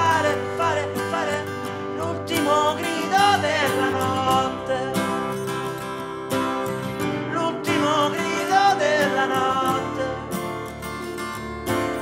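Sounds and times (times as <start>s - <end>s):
strummed guitar chords: 0.0s - 12.0s.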